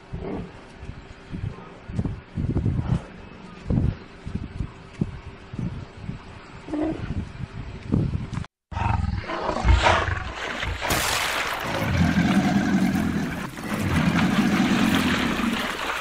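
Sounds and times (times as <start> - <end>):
animal roaring and growling: 8.7 - 10.8, 11.6 - 15.9
water splashing and churning: 9.2 - 16.0.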